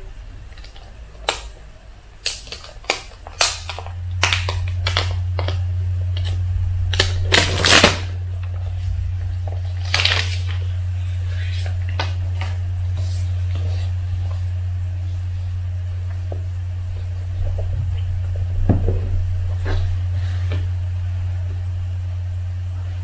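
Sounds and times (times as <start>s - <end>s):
steady low hum: 0.0s - 23.0s
plastic packaging crackling: 2.2s - 14.5s.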